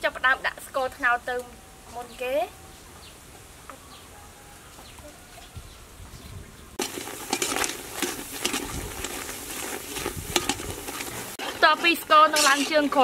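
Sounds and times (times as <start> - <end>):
spoon scraping a pot: 6.8 - 13.0
sugar bubbling and sizzling: 6.8 - 13.0
sugar lumps crumbling ticks: 6.8 - 13.0.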